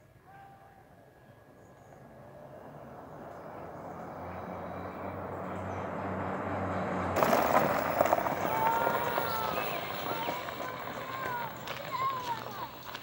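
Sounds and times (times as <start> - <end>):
rush of noise passing by: 2.1 - 9.2
golf cart motor hum: 2.7 - 13.0.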